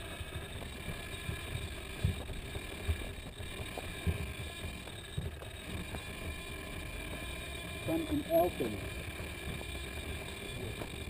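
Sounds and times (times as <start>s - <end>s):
low thuds of footsteps jolting: 0.0s - 7.4s.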